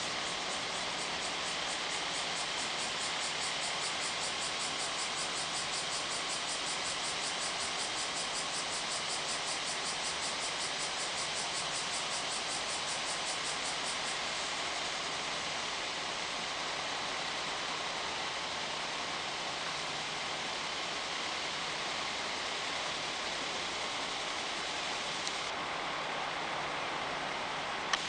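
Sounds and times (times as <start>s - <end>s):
cicadas shrilling: 0.0s - 19.8s.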